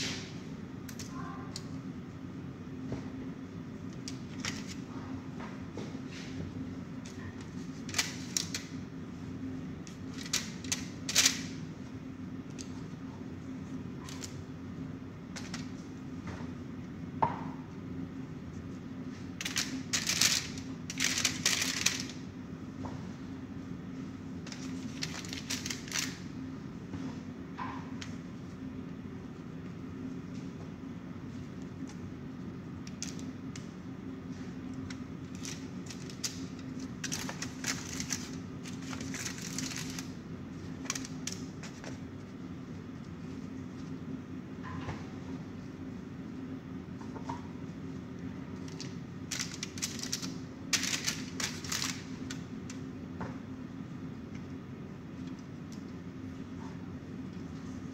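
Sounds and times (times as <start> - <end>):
steady low hum: 0.0 - 57.9
plastic gloves rustling: 18.5 - 22.2, 24.5 - 26.3, 35.2 - 44.0, 48.6 - 52.4
aluminium foil crinkling: 19.4 - 22.2, 24.5 - 26.3, 35.2 - 41.9, 48.6 - 52.4.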